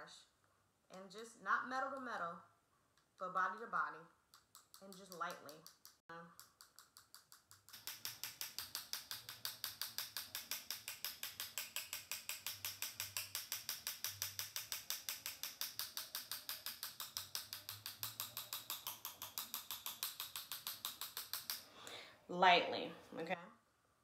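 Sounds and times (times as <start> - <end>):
paintbrush tapping clicks: 4.3 - 21.7.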